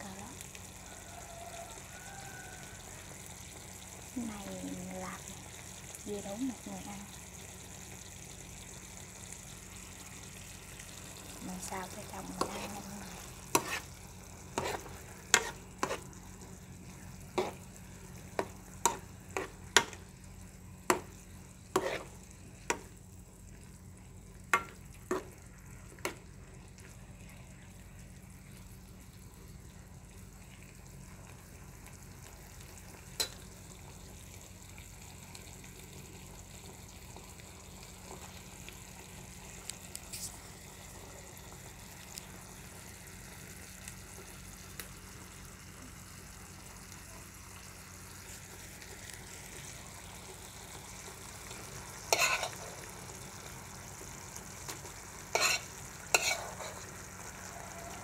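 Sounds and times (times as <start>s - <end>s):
vegetables sizzling in oil: 0.0s - 58.0s
metal spoon scraping a pan: 12.3s - 14.0s, 14.6s - 16.1s, 17.3s - 17.6s, 21.7s - 22.2s, 52.1s - 52.8s, 55.3s - 56.9s.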